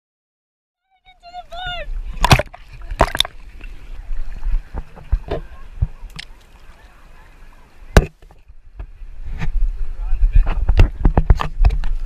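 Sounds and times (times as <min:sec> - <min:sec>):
water sloshing against paddleboard: 0:01.0 - 0:12.0
short splashes: 0:01.4 - 0:08.5.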